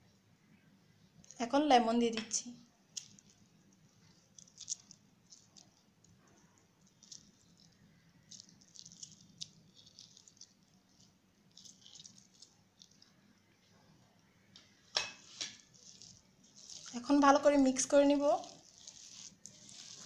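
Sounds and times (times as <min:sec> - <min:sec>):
faint small clicks and crackles: 0:03.0 - 0:13.2, 0:15.4 - 0:17.0, 0:18.3 - 0:20.0.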